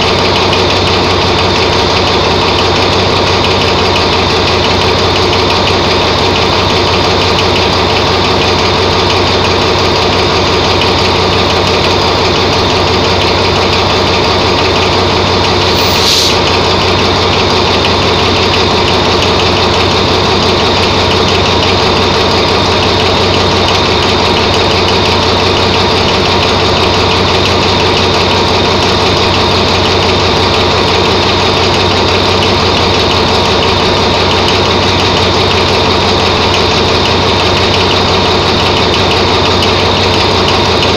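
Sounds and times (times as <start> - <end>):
locomotive engine idling: 0.0 - 40.9
short high hiss: 15.7 - 16.5.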